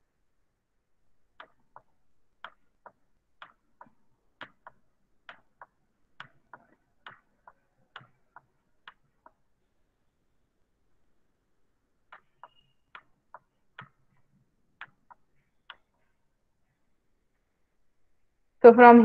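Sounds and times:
computer mouse clicking: 1.4 - 9.5, 12.1 - 16.1.

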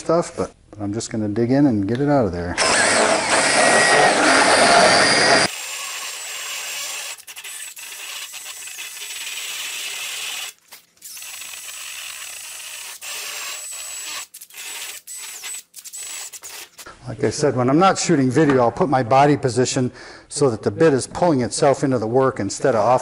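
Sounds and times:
drill grinding wood: 2.6 - 16.9.

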